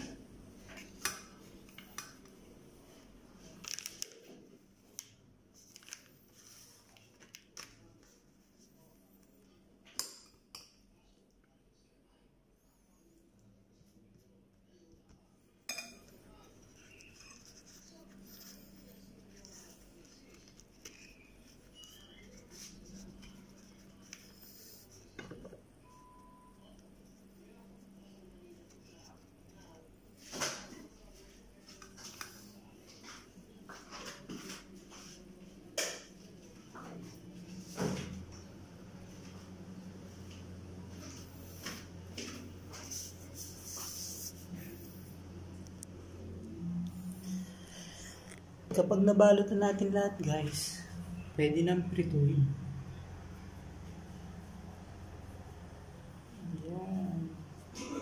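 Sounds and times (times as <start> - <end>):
low steady hum: 0.0 - 58.0
thin wrappers rustling: 3.4 - 4.4, 5.0 - 7.9.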